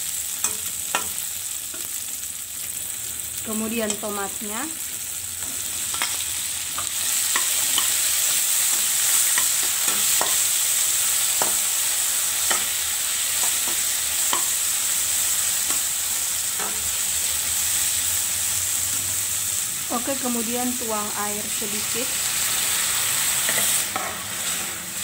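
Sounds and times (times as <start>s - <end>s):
vegetables sizzling in hot oil: 0.0s - 25.0s.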